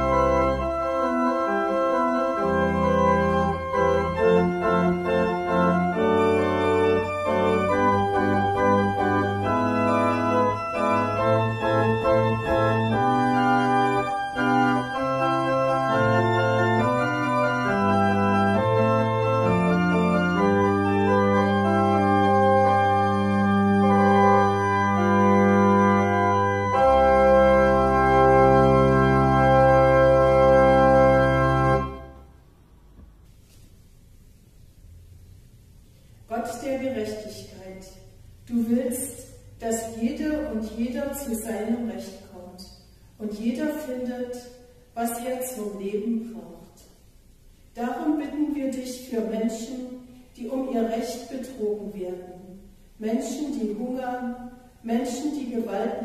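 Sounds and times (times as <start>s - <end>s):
church pipe organ playing: 0.0s - 32.5s.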